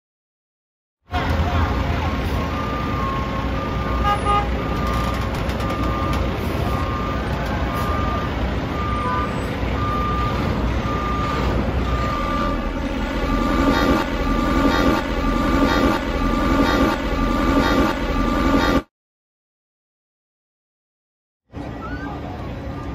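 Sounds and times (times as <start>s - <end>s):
traffic rumble: 1.1s - 18.8s, 21.5s - 22.9s
reversing alarm beeping: 2.0s - 18.9s.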